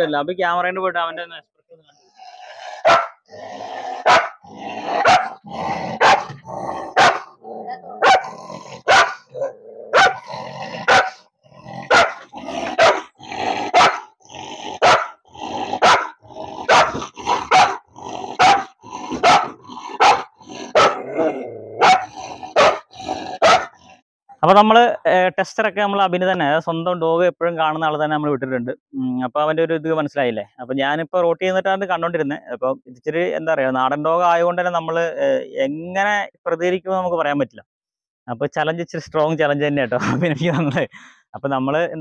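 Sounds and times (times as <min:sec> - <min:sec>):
dog growling: 0:02.1 - 0:24.0
dog barking: 0:02.8 - 0:03.2, 0:04.0 - 0:04.4, 0:05.0 - 0:05.4, 0:06.0 - 0:07.4, 0:08.0 - 0:11.2, 0:11.9 - 0:13.1, 0:13.7 - 0:14.1, 0:14.8 - 0:15.2, 0:15.8 - 0:17.8, 0:18.4 - 0:21.0, 0:21.8 - 0:23.8.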